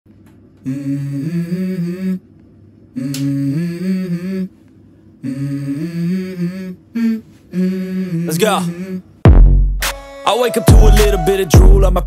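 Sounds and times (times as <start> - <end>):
person humming a melody: 0.6 - 2.3, 2.9 - 4.6, 5.2 - 9.1, 10.3 - 12.0.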